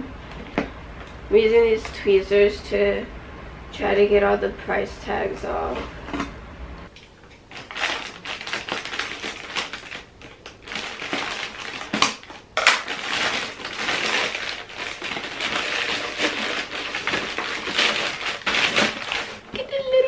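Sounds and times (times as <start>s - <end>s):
packaging rustling and crinkling: 7.4s - 20.0s.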